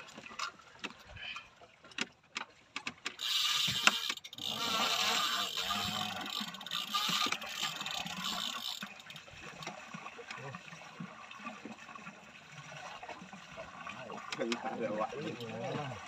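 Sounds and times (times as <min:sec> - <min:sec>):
fishing reel clicks: 0:03.1 - 0:09.2
fishing reel whirring: 0:03.2 - 0:09.4.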